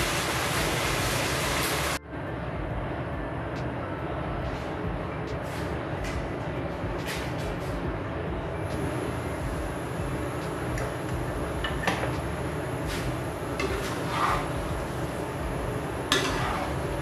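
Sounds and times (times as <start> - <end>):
steady rumbling noise: 0.0 - 17.0
metal spatula scraping in a wok: 12.8 - 14.7, 16.1 - 17.0.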